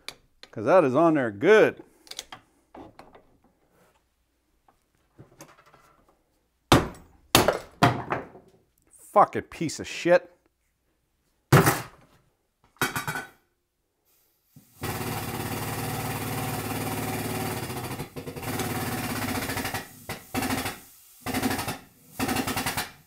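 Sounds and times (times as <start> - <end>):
hydraulic pump running: 14.8 - 22.9.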